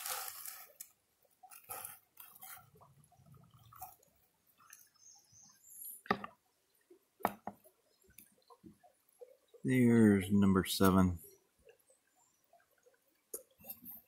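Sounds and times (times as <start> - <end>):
faint water drips: 0.0 - 14.0.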